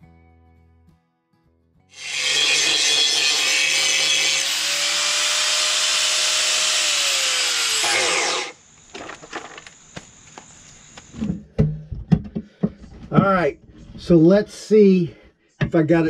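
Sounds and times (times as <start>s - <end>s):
angle grinder grinding: 1.9s - 11.2s.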